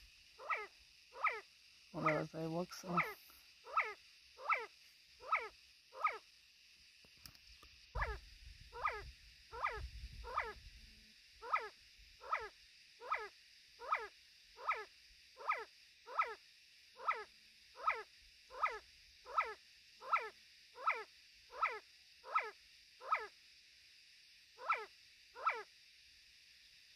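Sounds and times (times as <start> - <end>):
wind rumble on microphone: 8.0 - 10.9.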